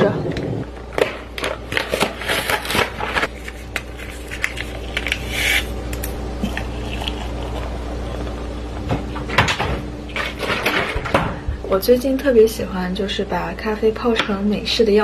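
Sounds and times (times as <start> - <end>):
cardboard packaging rustling: 1.1 - 5.7.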